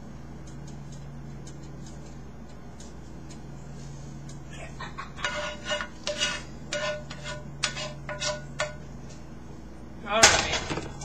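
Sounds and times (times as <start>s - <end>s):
spatula scraping frying pan: 5.0s - 8.8s.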